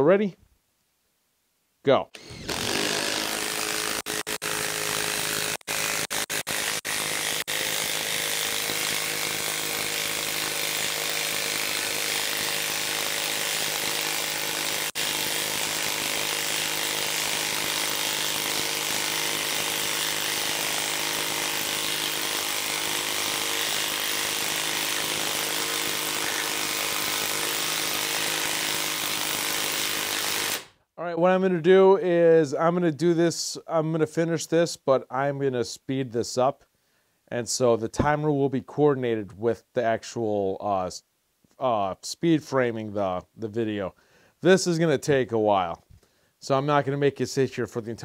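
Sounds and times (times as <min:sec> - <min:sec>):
impact wrench hammering: 0:02.2 - 0:30.7.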